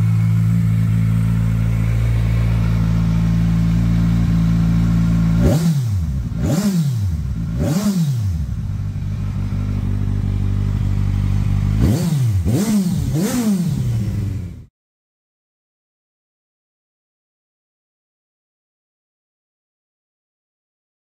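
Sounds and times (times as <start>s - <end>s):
motorcycle engine idling and revving: 0.0s - 14.7s.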